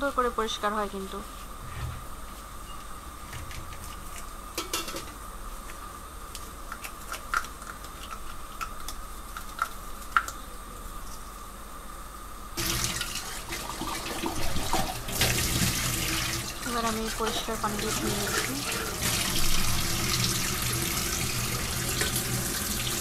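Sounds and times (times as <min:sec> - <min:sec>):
water running into metal sink: 0:12.6 - 0:23.0.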